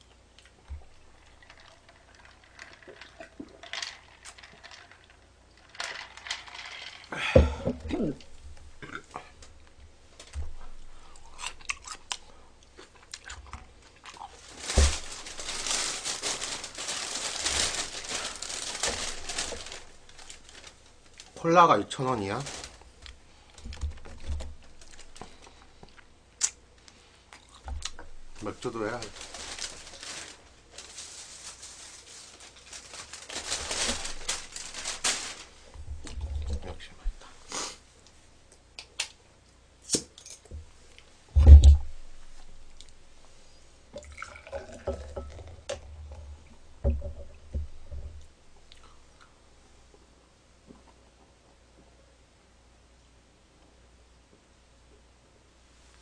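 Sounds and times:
plastic bag crinkling: 0.8 - 7.1, 12.9 - 26.0, 27.5 - 37.4
handling rustle: 14.2 - 21.4, 22.0 - 25.7, 27.7 - 37.5
thump: 41.4 - 41.8.

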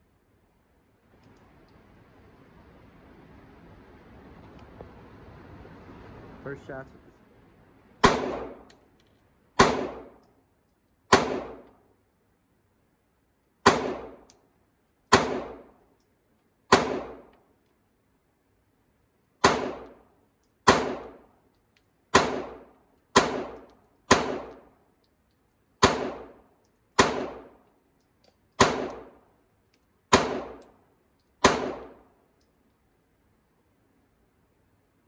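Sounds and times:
handgun shots indoors: 13.6 - 14.3, 22.1 - 24.7, 28.6 - 29.2, 30.1 - 30.8, 31.4 - 32.1.

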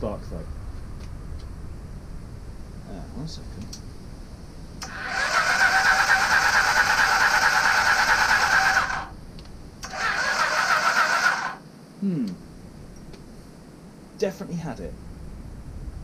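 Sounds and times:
starter motor cranking engine: 4.8 - 9.1, 9.8 - 11.6.

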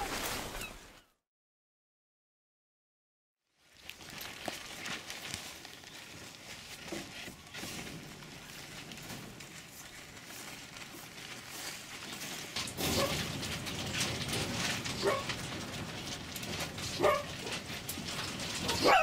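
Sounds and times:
wire-mesh cages rattling: 3.8 - 19.0
foxes yipping and whining: 18.7 - 19.0.

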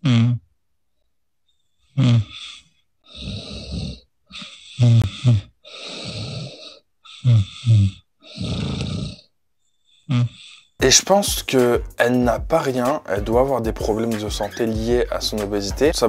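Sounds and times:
woman snoring heavily: 1.9 - 9.3, 10.0 - 10.8.

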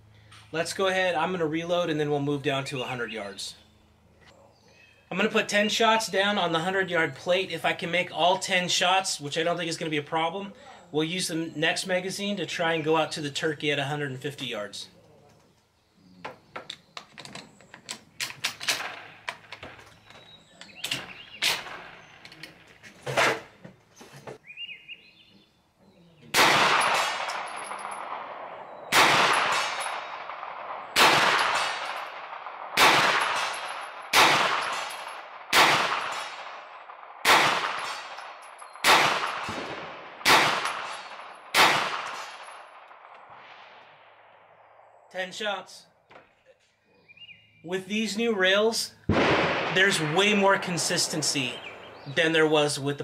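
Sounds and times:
gunshots with echo: 26.3 - 44.3, 49.1 - 52.7.

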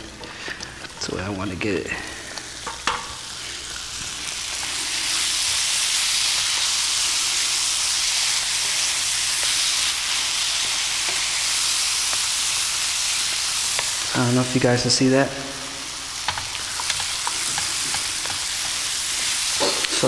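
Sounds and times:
vegetables sizzling in a frying pan: 0.0 - 20.0.

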